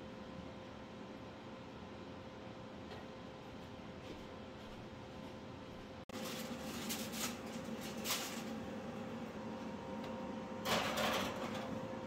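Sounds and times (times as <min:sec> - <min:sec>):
aluminium foil crinkling: 0:06.1 - 0:08.6.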